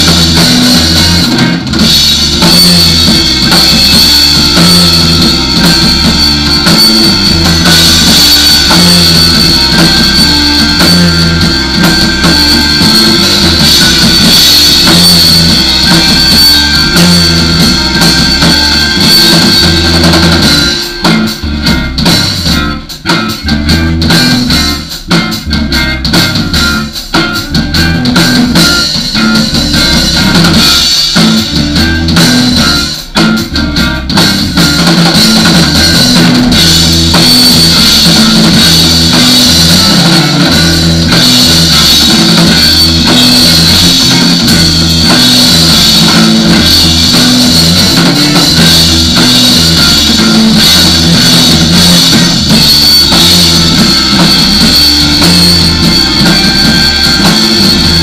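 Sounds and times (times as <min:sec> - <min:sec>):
live instrumental rock band: 0:00.0 - 0:58.0.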